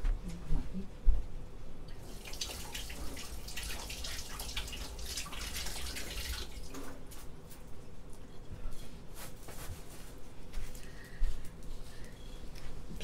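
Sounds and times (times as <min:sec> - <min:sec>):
tap water splashing in sink: 0:02.0 - 0:07.0.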